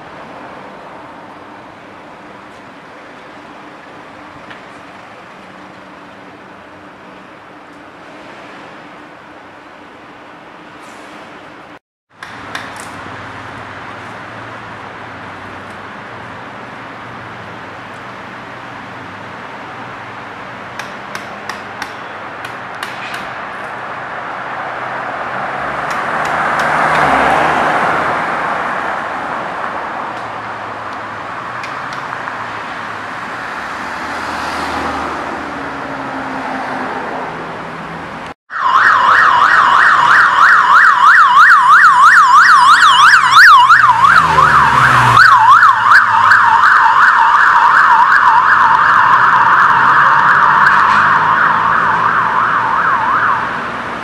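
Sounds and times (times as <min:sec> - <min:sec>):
vehicles passing: 0:00.0 - 0:54.0
higher siren warbling: 0:38.5 - 0:53.5
emergency siren warbling: 0:38.5 - 0:53.8.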